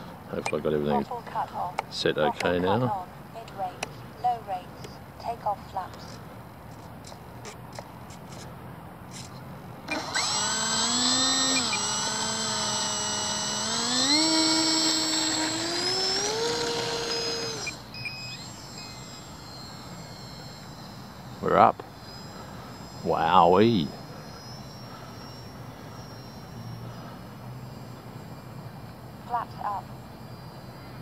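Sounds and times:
model plane electric motor whine: 0:09.1 - 0:31.0.

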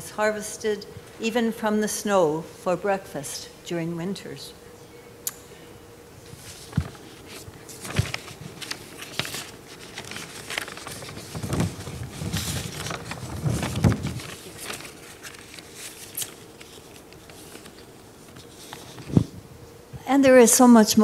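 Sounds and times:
faint steady hum: 0:00.0 - 0:21.0
paper pages rustling: 0:06.3 - 0:19.4.

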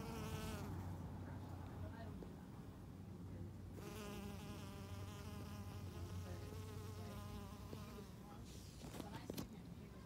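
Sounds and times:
bee buzzing in flight: 0:03.8 - 0:08.1.

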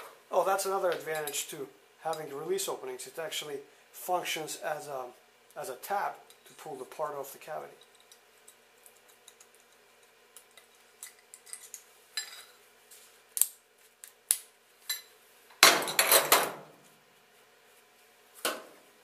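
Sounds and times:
metal pieces clinking and scraping: 0:10.5 - 0:12.6.

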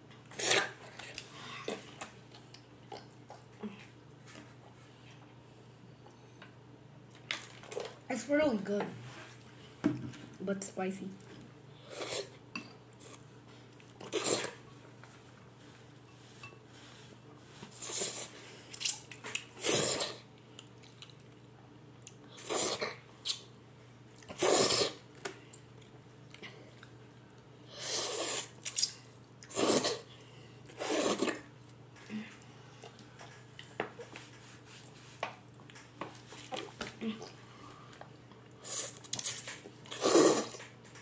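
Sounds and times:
child slurping noodles: 0:00.3 - 0:00.8, 0:11.8 - 0:12.4, 0:14.0 - 0:14.6, 0:19.6 - 0:20.3, 0:22.4 - 0:23.0, 0:24.3 - 0:25.0, 0:27.8 - 0:28.6, 0:29.5 - 0:30.1, 0:30.7 - 0:31.5, 0:39.9 - 0:40.6.

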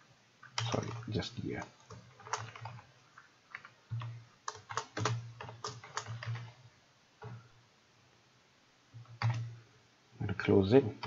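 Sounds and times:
typing on computer keyboard: 0:01.8 - 0:02.9, 0:03.5 - 0:06.6, 0:09.1 - 0:09.5.

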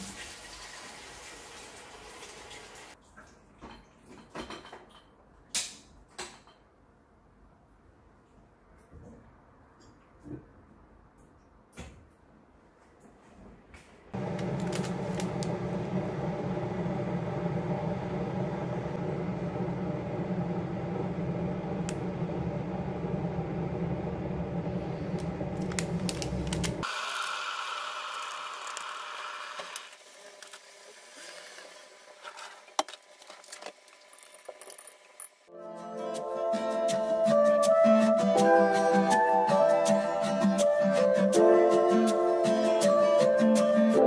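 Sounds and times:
kitchen appliance humming: 0:14.2 - 0:35.2.

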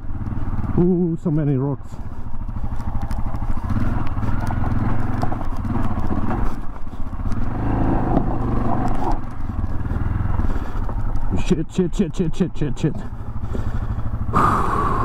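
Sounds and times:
motorcycle engine under throttle: 0:00.0 - 0:15.0
rocks clattering under tyres: 0:02.2 - 0:11.8.

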